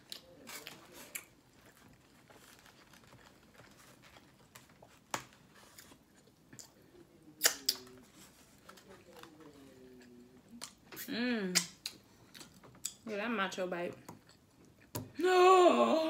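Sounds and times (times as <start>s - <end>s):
chewing with wet mouth sounds: 14.0s - 15.0s.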